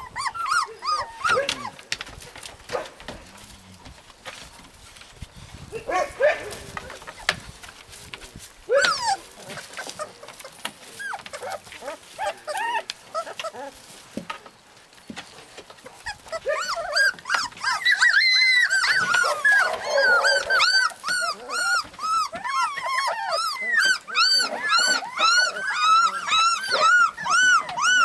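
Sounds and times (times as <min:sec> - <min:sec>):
puppies whining: 0:00.0 - 0:02.5, 0:08.6 - 0:14.0, 0:15.0 - 0:28.0.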